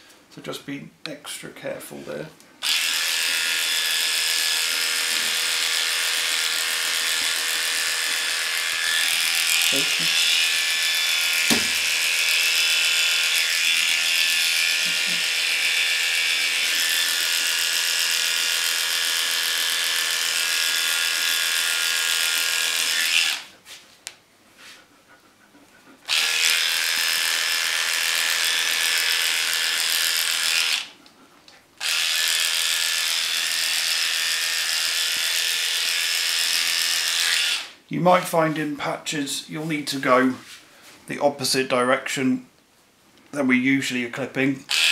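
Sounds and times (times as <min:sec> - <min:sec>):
electric clippers buzzing: 0:02.6 - 0:23.5, 0:26.1 - 0:31.0, 0:31.8 - 0:37.8, 0:44.7 - 0:44.9.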